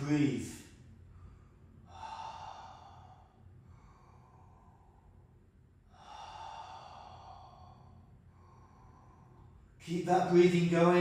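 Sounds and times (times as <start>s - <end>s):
man breathing through mouth: 5.9s - 9.8s.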